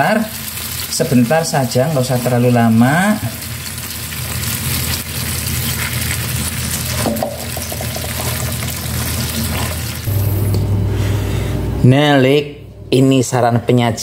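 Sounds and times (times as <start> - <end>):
sauce sizzling and bubbling in pan: 0.0 - 10.1
spatula stirring: 3.6 - 10.1.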